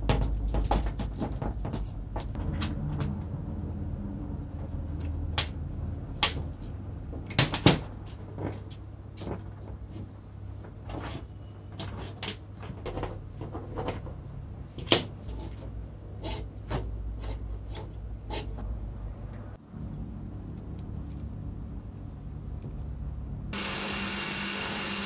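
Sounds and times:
clicks and knocks of parts handled: 0.0s - 3.2s.

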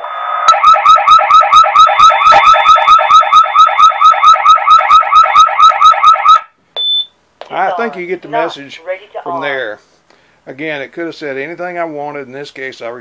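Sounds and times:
electronic siren yelping: 0.0s - 6.5s.

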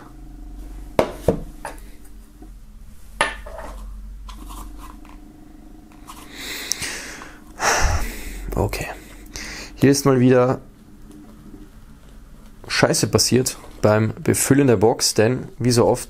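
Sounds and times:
soft rubbing and rustle: 3.6s - 5.3s.

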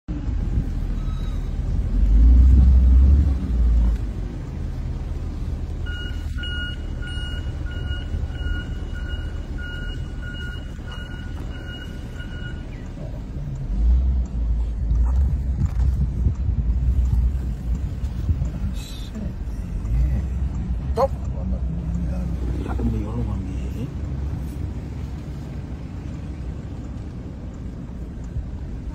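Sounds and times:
car engine and road rumble: 0.0s - 28.9s
electronic beeps: 5.9s - 13.0s.

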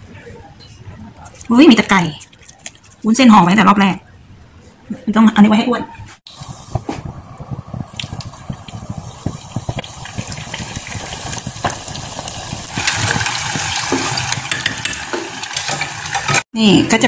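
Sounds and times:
deep-frying in hot oil: 6.3s - 16.5s.

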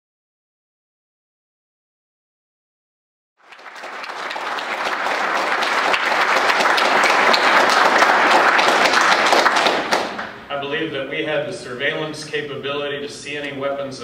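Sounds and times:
audience applauding: 3.4s - 10.4s.

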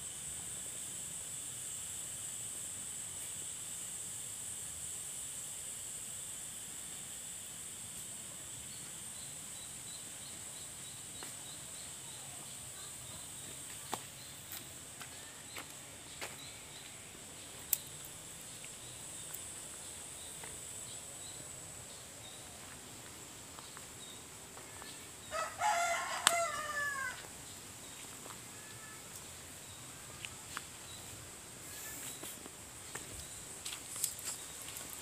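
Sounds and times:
high-pitched hiss: 0.0s - 35.0s
rooster crowing: 25.3s - 27.3s.

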